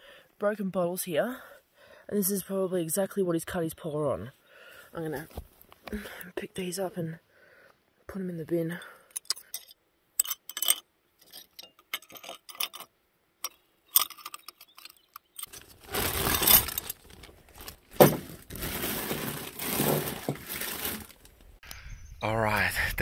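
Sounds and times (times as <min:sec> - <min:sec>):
glass shards clinking: 0:09.1 - 0:21.1
plastic bag rustling: 0:15.5 - 0:21.6.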